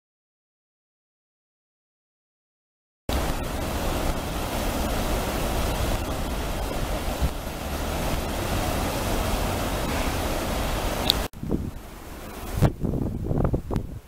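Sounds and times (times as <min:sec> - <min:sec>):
river water rushing over a weir: 0:03.1 - 0:12.7
wind rumbling on microphone: 0:03.1 - 0:14.0.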